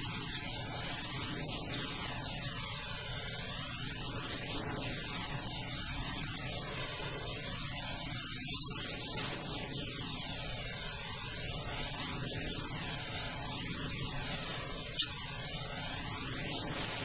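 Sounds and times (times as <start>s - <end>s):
background hum and hiss: 0.0s - 17.0s
sharp high click: 15.0s - 15.6s.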